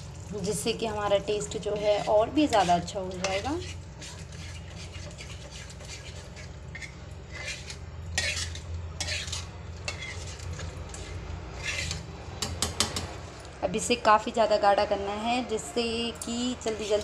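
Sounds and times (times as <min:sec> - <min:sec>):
metal spoon scraping a frying pan: 0:01.3 - 0:13.1, 0:16.2 - 0:17.0.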